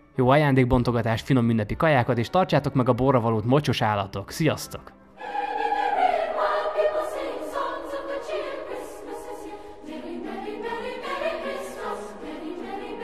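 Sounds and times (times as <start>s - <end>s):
choir singing held notes: 5.2s - 13.0s.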